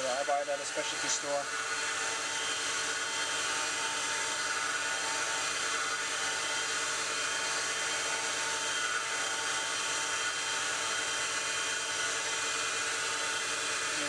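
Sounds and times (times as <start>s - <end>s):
wood lathe humming: 0.0s - 14.0s.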